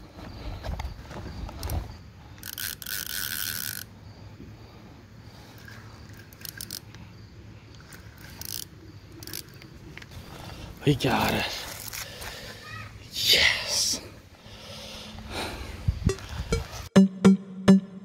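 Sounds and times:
fishing reel ratcheting: 0:02.4 - 0:03.9, 0:05.4 - 0:07.0, 0:07.8 - 0:10.1.

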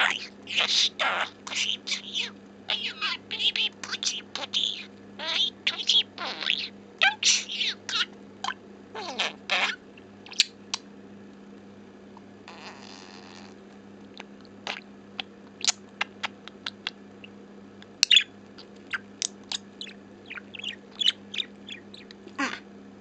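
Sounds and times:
budgerigar clicking and chirping: 0:00.0 - 0:10.8, 0:14.7 - 0:17.0, 0:17.8 - 0:22.5
low electrical hum: 0:00.0 - 0:23.0.

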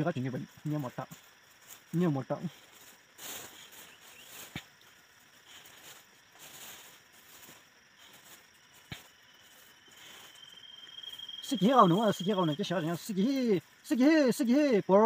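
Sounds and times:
high insect drone: 0:00.0 - 0:15.0
soft rustling: 0:00.8 - 0:10.6.

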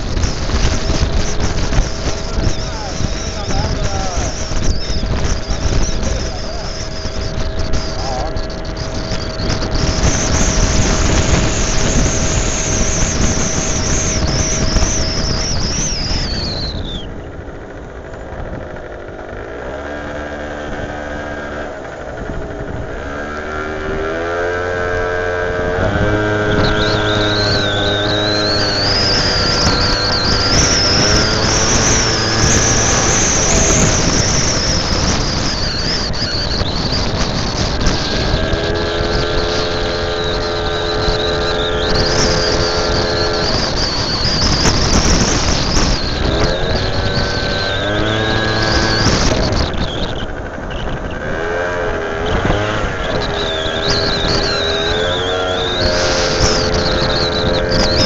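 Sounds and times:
moped engine whining: 0:00.0 - 0:58.0
wind rushing over microphone: 0:00.0 - 0:58.0.

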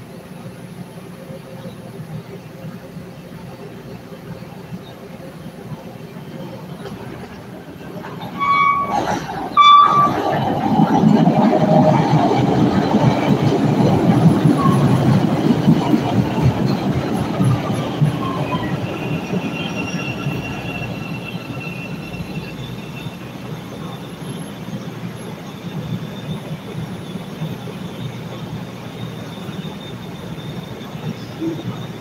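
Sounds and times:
train wheels rumbling on track: 0:00.0 - 0:32.0
high wheel squeal: 0:08.0 - 0:11.1, 0:17.5 - 0:32.0.

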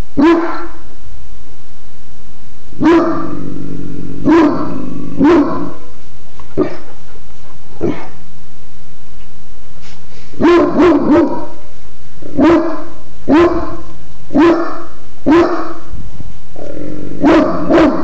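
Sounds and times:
dog barking deeply: 0:00.2 - 0:00.9, 0:02.8 - 0:05.9, 0:06.6 - 0:07.0, 0:07.8 - 0:08.2, 0:10.4 - 0:11.6, 0:12.2 - 0:15.9, 0:16.6 - 0:18.0.

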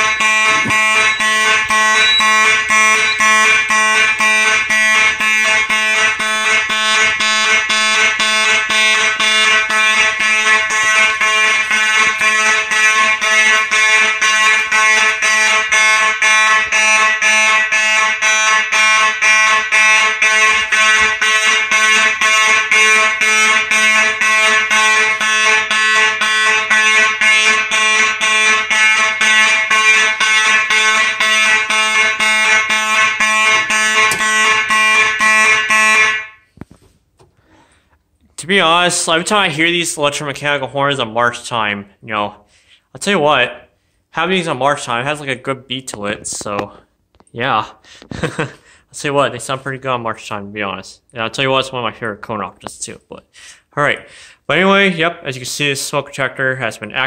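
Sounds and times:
pulsing fire alarm horn: 0:00.0 - 0:36.5.

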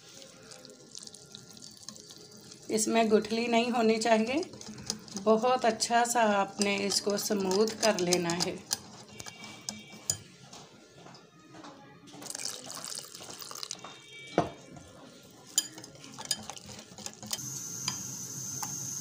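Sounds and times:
liquid pouring: 0:00.0 - 0:05.8, 0:12.2 - 0:13.8
whisk beating batter in glass bowl: 0:01.6 - 0:10.2, 0:15.5 - 0:17.4.

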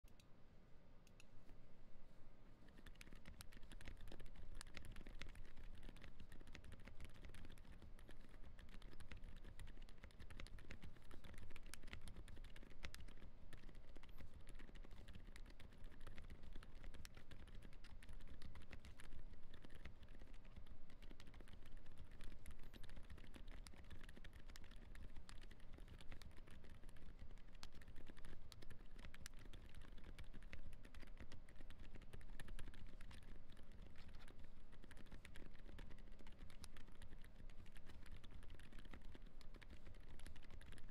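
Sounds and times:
fast typing on mechanical keyboard: 0:02.6 - 0:40.9.

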